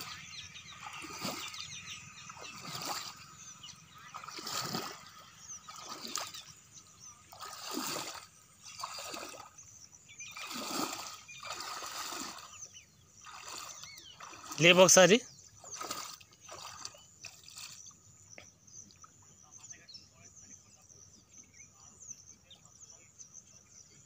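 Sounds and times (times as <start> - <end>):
feet wading through muddy water: 0.0 - 18.0.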